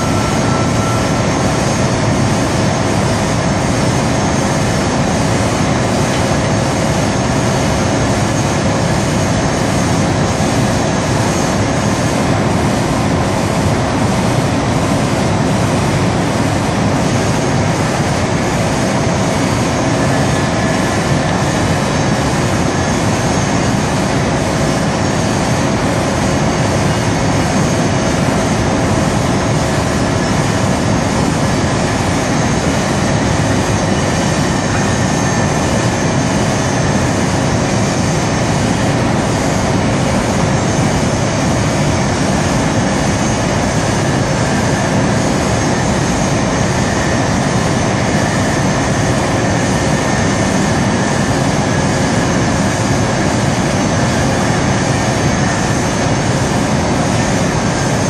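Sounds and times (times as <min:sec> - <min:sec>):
industrial machinery rumble: 0:00.0 - 0:58.0.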